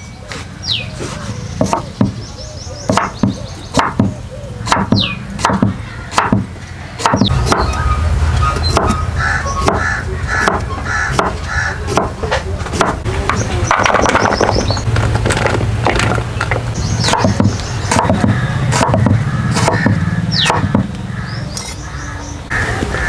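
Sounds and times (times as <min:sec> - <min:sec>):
birds calling: 0:00.0 - 0:23.0
low hum with repeated calls: 0:00.0 - 0:23.0
cleaver chopping on wooden board: 0:01.6 - 0:02.2, 0:02.9 - 0:07.8, 0:08.7 - 0:09.0, 0:09.6 - 0:14.5, 0:15.2 - 0:20.9.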